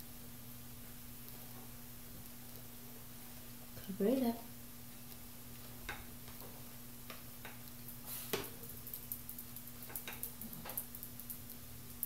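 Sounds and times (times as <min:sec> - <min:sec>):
steady low hum: 0:00.0 - 0:12.0
metal spatula clicking and tapping: 0:08.8 - 0:11.6.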